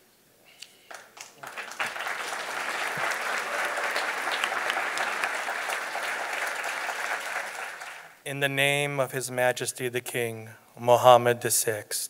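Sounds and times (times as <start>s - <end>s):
large audience applauding: 0.9s - 8.2s.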